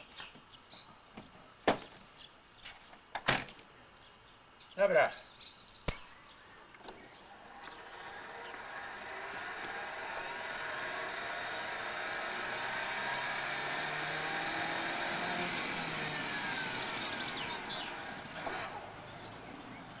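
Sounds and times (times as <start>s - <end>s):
folding mechanism humming: 6.7s - 20.0s
trailer clunk: 6.8s - 20.0s.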